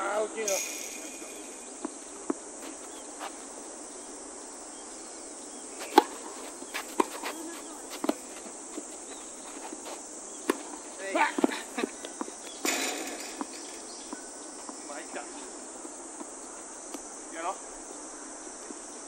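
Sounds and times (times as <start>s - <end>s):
high insect buzz: 0.0s - 19.0s
tennis ball hit by racket: 5.8s - 8.3s, 9.7s - 11.6s, 12.2s - 14.2s.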